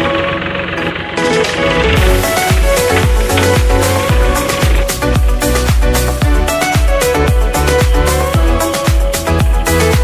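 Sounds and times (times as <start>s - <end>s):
deep bass drum beat: 1.6s - 7.5s.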